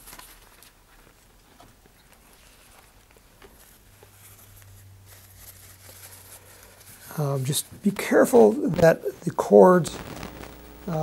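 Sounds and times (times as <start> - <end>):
low steady hum: 2.7 - 11.0.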